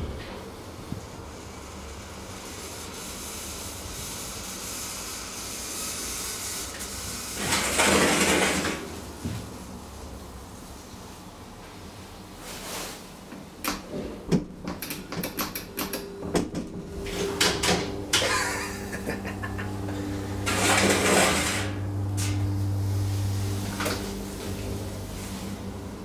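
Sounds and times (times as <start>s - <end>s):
hydraulic power unit humming: 13.4s - 26.0s
elevator doors clattering shut: 13.8s - 22.4s
elevator button clicks: 14.7s - 16.7s.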